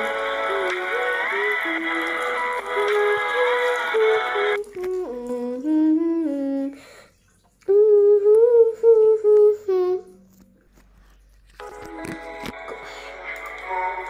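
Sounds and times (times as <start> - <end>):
person humming a slow melody: 0.0 - 6.9, 7.6 - 10.2.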